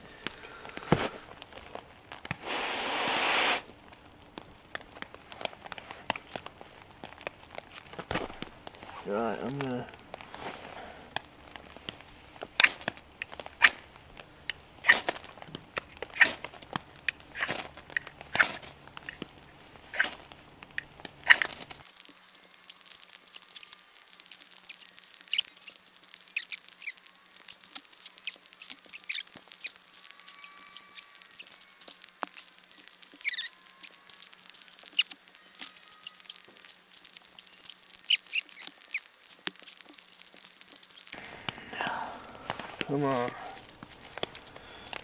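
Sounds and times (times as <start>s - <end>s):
knife scraping fire steel: 18.3s - 18.7s, 22.6s - 41.2s.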